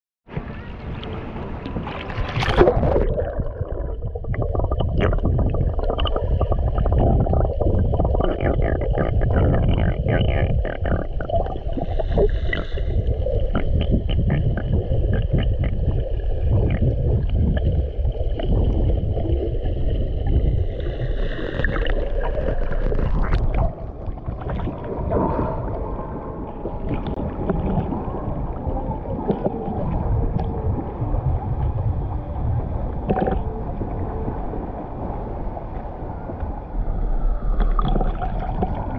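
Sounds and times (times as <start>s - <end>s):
small waves lapping and splashing: 0.3s - 3.3s
underwater water rush: 0.3s - 38.9s.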